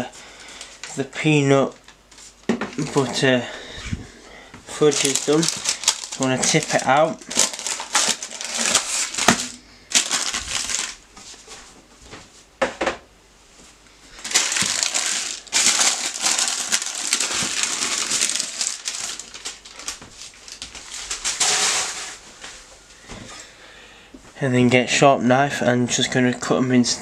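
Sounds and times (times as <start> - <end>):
parchment paper crinkling: 0.5 - 3.2, 4.7 - 11.3, 14.2 - 22.2.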